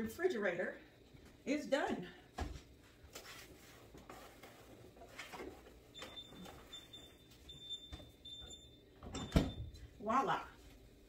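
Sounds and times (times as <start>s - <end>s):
cloth wiping and rustling: 2.8s - 6.8s.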